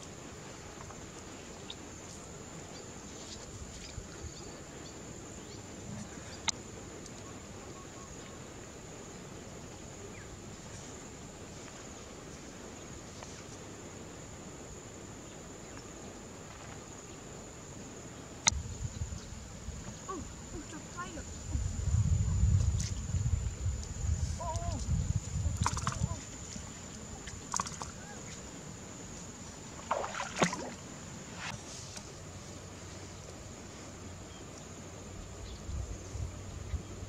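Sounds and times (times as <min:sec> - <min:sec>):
high-pitched insect drone: 0:14.0 - 0:31.3.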